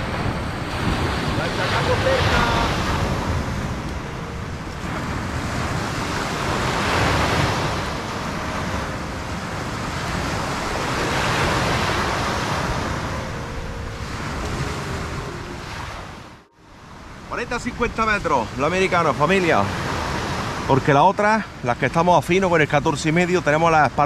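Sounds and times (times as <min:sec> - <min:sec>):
surf breaking on shingle beach: 0:00.0 - 0:04.1
wind on microphone: 0:00.0 - 0:20.9.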